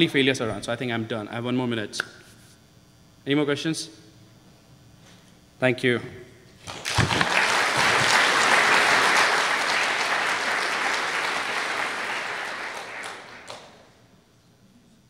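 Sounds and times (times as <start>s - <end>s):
audience applauding: 6.7s - 14.0s.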